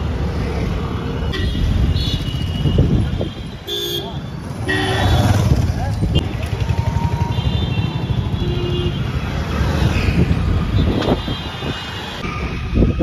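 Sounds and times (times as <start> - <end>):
traffic engine and road rumble: 0.0 - 13.0.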